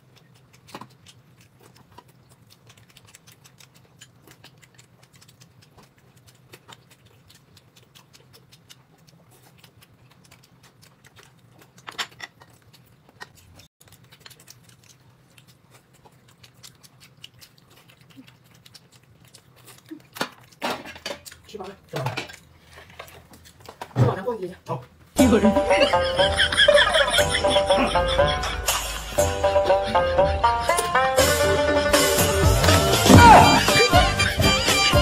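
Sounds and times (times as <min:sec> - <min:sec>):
small clicks while eating: 0:00.0 - 0:23.9
chewing noises: 0:00.0 - 0:25.2.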